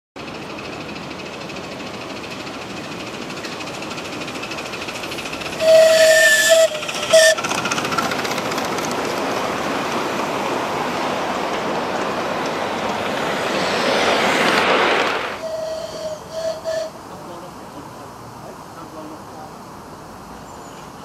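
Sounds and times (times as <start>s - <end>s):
wagon wheels rolling on rails: 0.2s - 16.0s
locomotive whistle: 5.6s - 7.5s, 15.4s - 17.1s.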